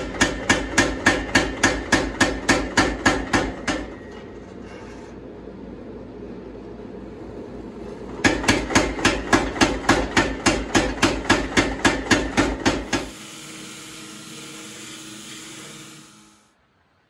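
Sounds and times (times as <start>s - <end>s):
power hammer striking metal: 0.0s - 4.1s, 8.2s - 16.4s
machine running: 12.3s - 16.6s.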